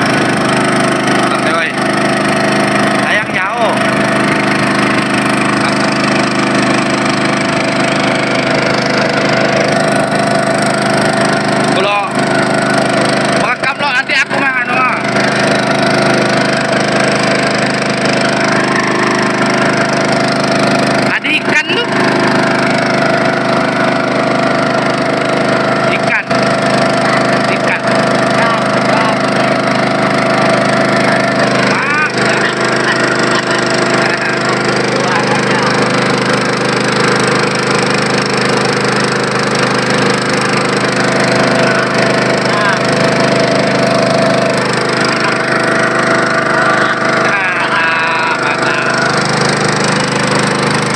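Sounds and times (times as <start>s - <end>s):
small boat engine running: 0.0s - 50.9s.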